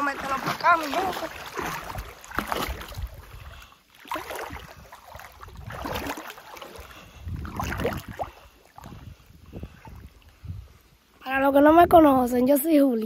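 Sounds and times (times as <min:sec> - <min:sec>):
water sloshing and lapping: 0:00.0 - 0:11.9.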